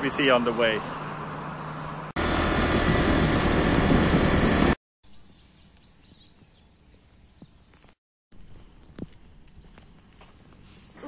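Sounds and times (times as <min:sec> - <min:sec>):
road and wind rushing: 0:00.0 - 0:04.8
roadside traffic hum: 0:00.0 - 0:07.0, 0:08.4 - 0:11.0
outdoor ambience: 0:00.0 - 0:11.0.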